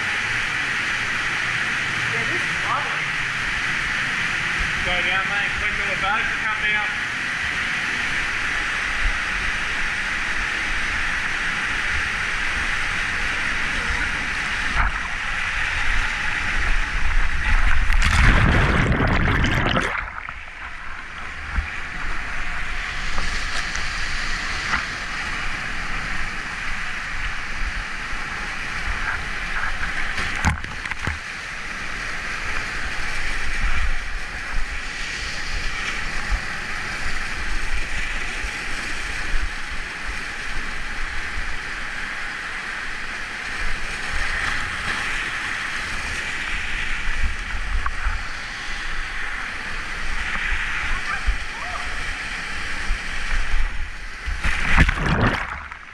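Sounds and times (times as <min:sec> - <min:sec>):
creek water rushing: 0:00.0 - 0:55.9
small waterfall pouring: 0:08.4 - 0:24.5, 0:54.4 - 0:55.9.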